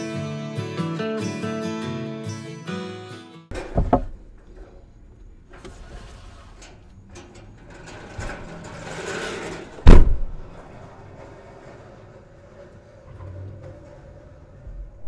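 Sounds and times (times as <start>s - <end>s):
wooden posts scraping and knocking: 3.5s - 15.0s
car liftgate slamming shut: 9.8s - 10.5s.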